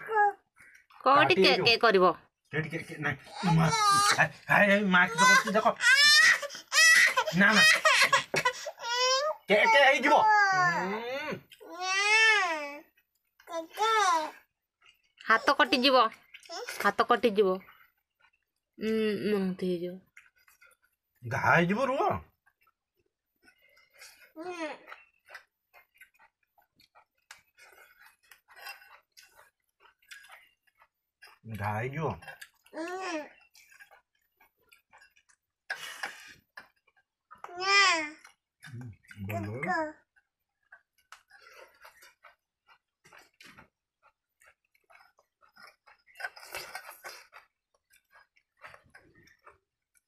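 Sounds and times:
person chewing food: 10.6s - 19.0s, 20.1s - 21.2s, 22.2s - 50.0s.

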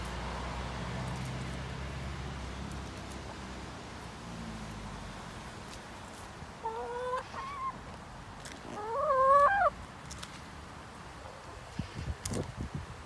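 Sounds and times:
hen calling: 6.6s - 7.8s, 8.6s - 9.8s.

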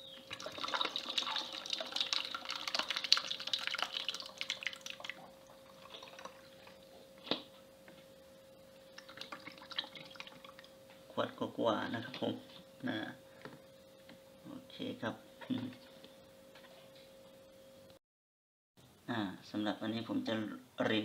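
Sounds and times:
dripping liquid: 0.2s - 6.9s, 8.9s - 10.8s
liquid pouring into a funnel: 0.2s - 6.9s, 9.0s - 10.8s.

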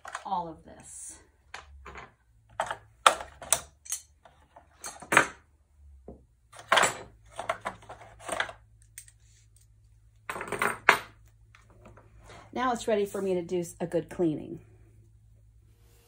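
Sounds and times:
plastic and metal parts clacking: 6.5s - 9.7s.

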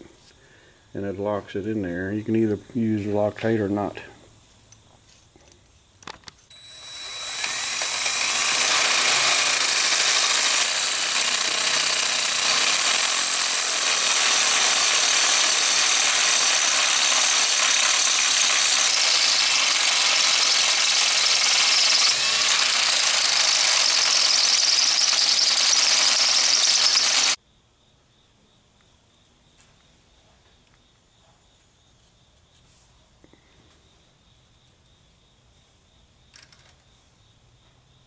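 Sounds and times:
cordless drill drilling: 6.5s - 27.4s.

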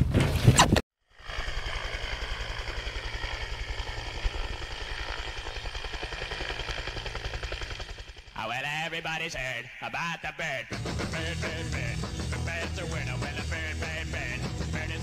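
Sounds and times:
helicopter rotor beat: 1.0s - 15.0s
helicopter turbine whine: 1.0s - 15.0s
music: 10.7s - 15.0s.

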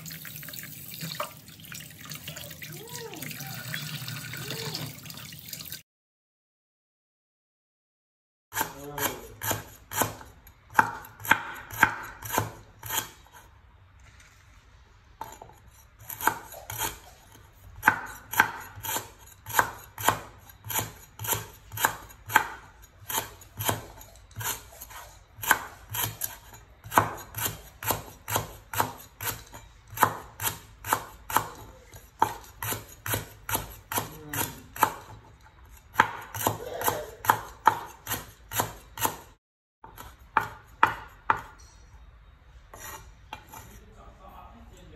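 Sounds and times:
cleaver chopping on wooden board: 8.6s - 13.1s, 17.8s - 24.6s, 25.4s - 31.6s, 32.2s - 35.1s, 35.9s - 41.5s.

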